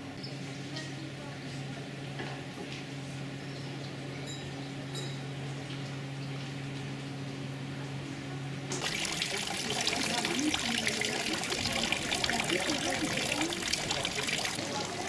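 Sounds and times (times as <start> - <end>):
fountain water splashing: 8.7 - 15.0.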